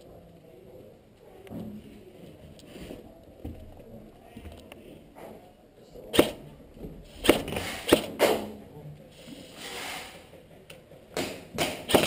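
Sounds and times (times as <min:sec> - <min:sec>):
airsoft gunfire cracks: 0:06.1 - 0:06.4, 0:07.2 - 0:08.5, 0:11.2 - 0:12.0.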